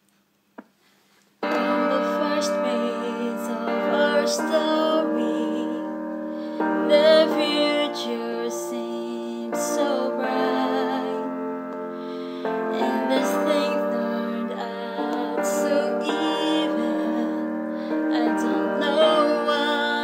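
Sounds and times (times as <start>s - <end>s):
slow piano chords: 1.4s - 20.0s.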